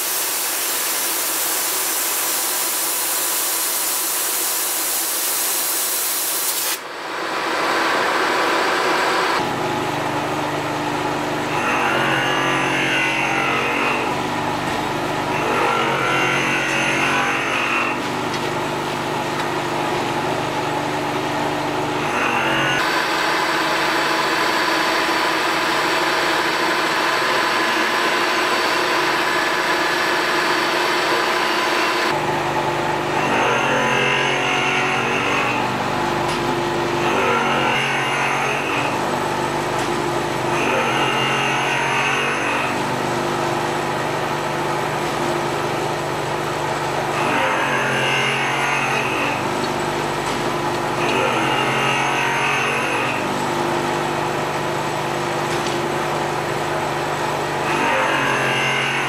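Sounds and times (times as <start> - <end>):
power tool hiss: 0.0 - 6.8
milling machine motor hum: 0.0 - 59.0
end mill cutting wood: 11.4 - 59.0.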